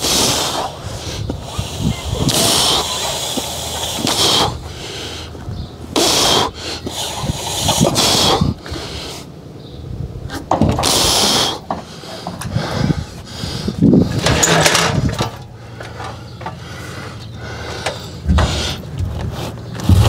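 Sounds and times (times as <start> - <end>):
metal roof panel scraping: 14.0 - 15.4.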